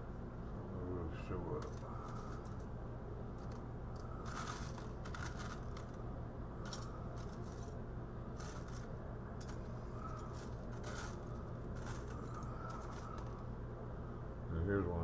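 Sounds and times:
steady low hum: 0.0 - 15.0
circuit board pieces clinking: 3.4 - 6.0, 6.6 - 7.8, 8.4 - 13.4.

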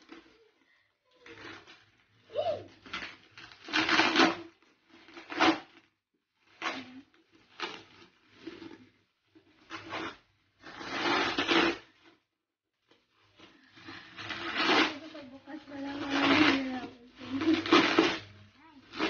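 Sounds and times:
plastic and paper wrap crinkling: 0.0 - 12.1, 12.8 - 19.0.

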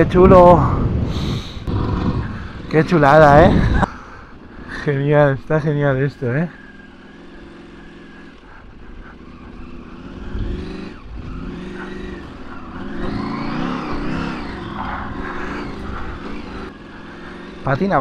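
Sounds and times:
motorcycle engine revving: 0.0 - 18.0.

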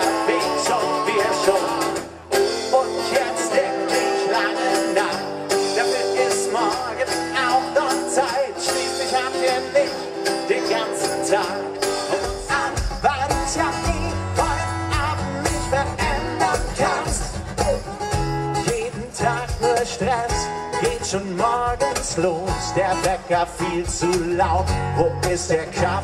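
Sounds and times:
acoustic band music: 0.0 - 26.0
heavy rhythmic bass beat: 10.6 - 26.0.

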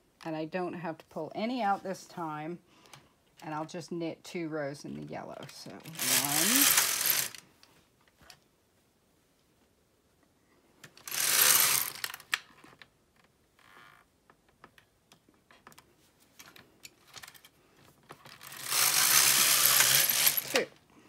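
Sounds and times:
knitting machine carriage clatter: 5.7 - 7.4, 11.0 - 12.2, 18.2 - 20.7.

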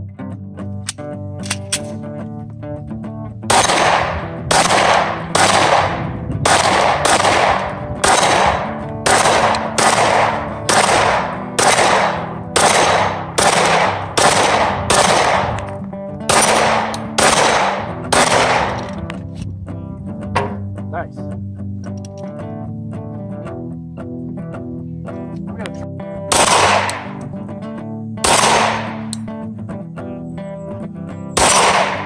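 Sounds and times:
guitar music: 0.0 - 32.0
pistol shots: 3.5 - 19.0, 26.3 - 27.2, 28.2 - 29.3, 31.4 - 32.0.

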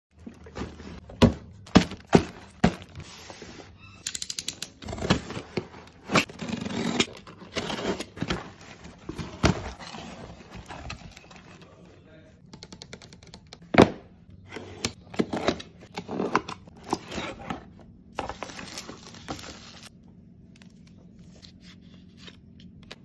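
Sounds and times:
cardboard scraping and rustling: 0.2 - 3.7, 4.8 - 11.7.

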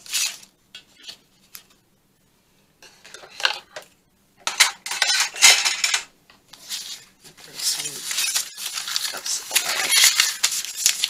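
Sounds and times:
paper rustling: 0.0 - 1.8, 6.5 - 11.0
metal ruler clattering: 4.4 - 6.1.

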